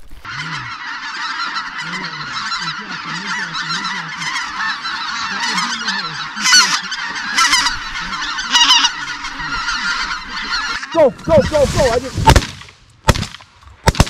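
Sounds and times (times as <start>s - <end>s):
geese honking: 0.2s - 12.3s.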